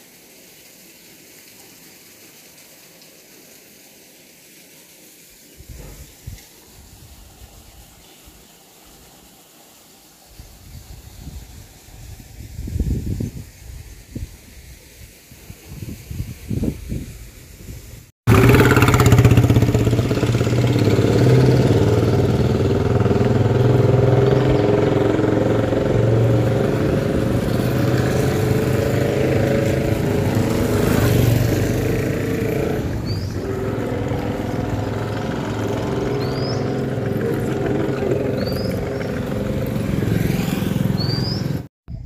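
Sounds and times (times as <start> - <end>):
motorcycle engine running: 18.3 - 41.7.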